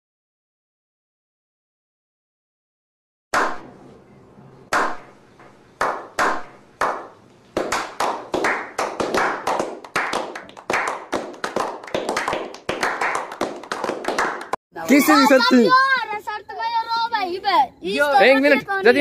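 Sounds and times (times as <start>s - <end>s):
people clapping: 5.8s - 14.6s.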